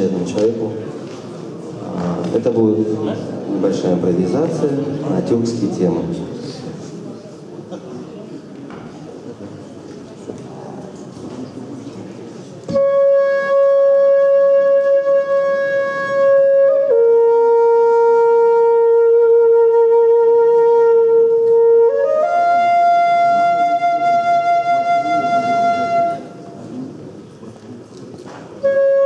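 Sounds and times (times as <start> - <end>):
wind instrument long held notes: 12.7 - 26.6, 28.6 - 29.0.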